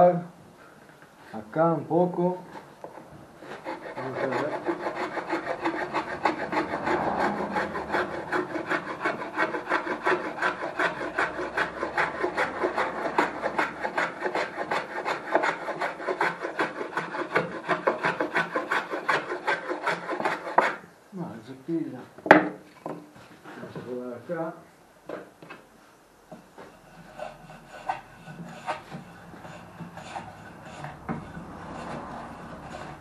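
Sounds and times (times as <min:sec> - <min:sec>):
hand plane shaving wood: 0:03.4 - 0:20.8, 0:26.7 - 0:33.0.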